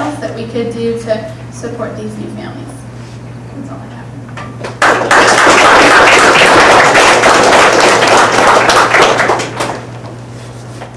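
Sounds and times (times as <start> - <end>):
audience applauding: 4.8 - 10.0.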